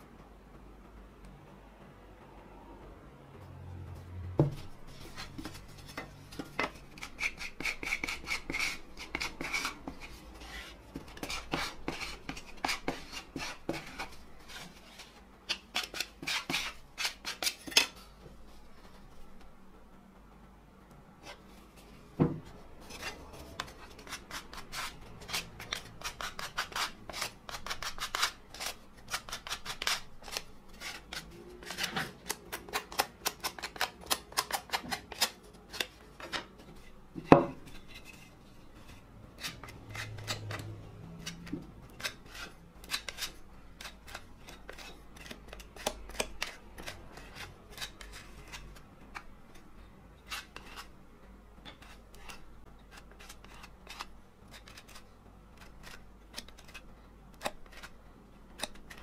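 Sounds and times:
putty knife scraping wood: 4.7 - 18.0, 22.8 - 49.3, 50.2 - 50.9.

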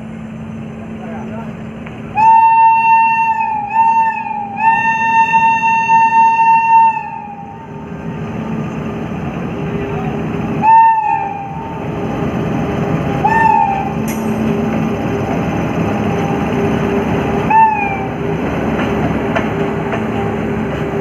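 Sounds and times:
locomotive rumbling on rails: 0.0 - 21.0
locomotive air horn blasts: 2.2 - 7.4, 13.2 - 13.9.

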